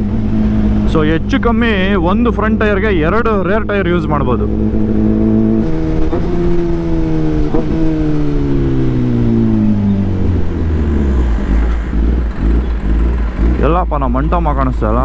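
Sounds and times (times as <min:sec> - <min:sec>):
motorcycle engine revs falling: 0:03.0 - 0:13.9.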